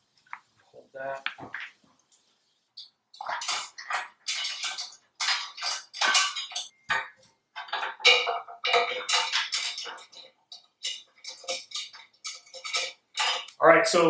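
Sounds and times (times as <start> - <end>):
bolts and washers clinking: 2.8 - 13.6.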